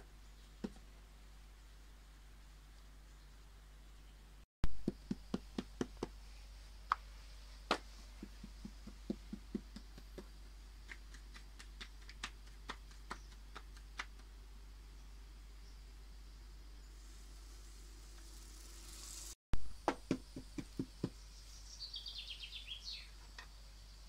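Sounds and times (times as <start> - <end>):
hands patting dough on metal tray: 7.7 - 14.2.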